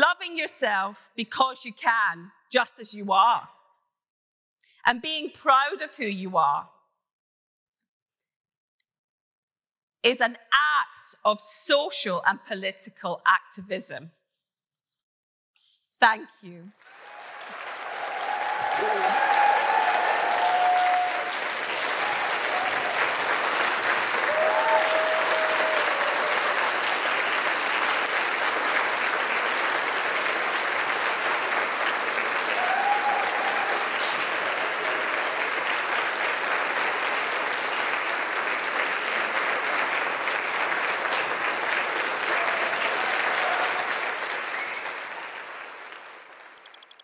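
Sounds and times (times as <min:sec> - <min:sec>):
audience applauding: 0:16.8 - 0:46.8
crowd calling out: 0:17.3 - 0:21.3.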